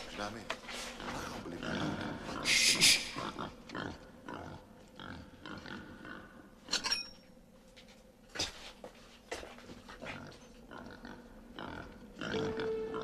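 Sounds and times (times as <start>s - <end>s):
pig grunting: 0.8s - 6.5s, 10.0s - 13.0s
pig squealing: 1.1s - 4.0s.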